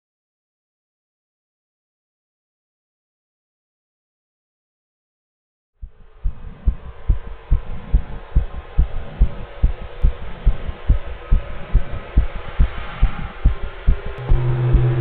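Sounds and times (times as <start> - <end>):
heartbeat thumps: 5.8 - 15.0.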